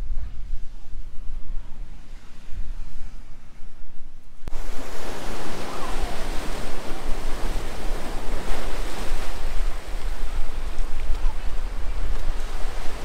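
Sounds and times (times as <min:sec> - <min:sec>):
wind rumbling on microphone: 0:00.0 - 0:13.0
ocean surf on rocky shore: 0:04.5 - 0:13.0.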